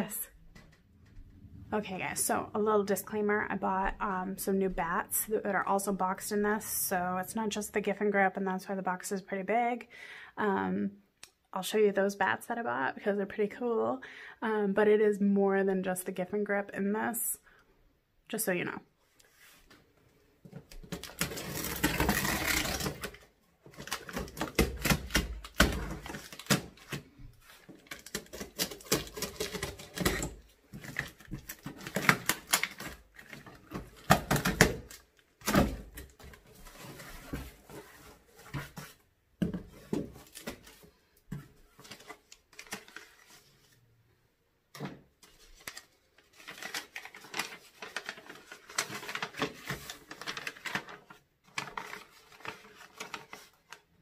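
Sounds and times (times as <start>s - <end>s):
paper rustling: 41.7s - 43.8s, 45.2s - 53.9s.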